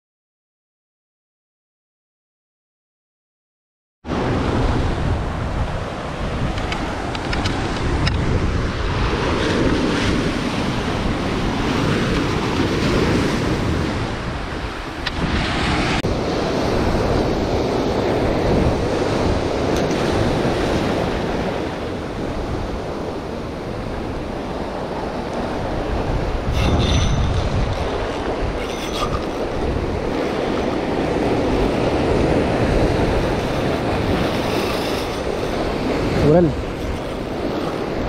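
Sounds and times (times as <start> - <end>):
wind buffeting microphone: 4.1 - 38.0
surf breaking on rocks: 24.9 - 38.0.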